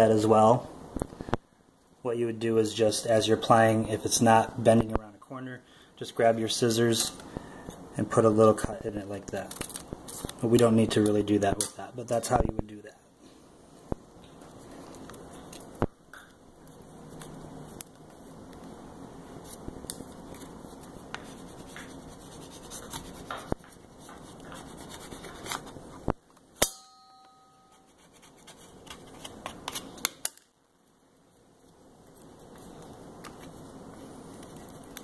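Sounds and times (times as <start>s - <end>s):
transfer tape rustling: 9.2s - 11.2s, 19.4s - 26.2s.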